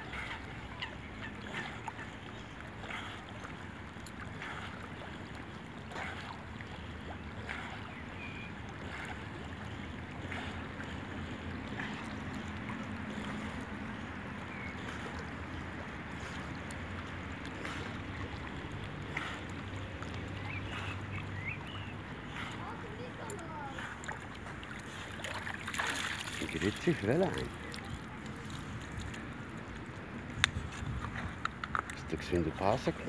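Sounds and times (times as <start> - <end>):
water lapping and splashing: 0.0 - 33.0
wind noise on microphone: 30.4 - 31.4.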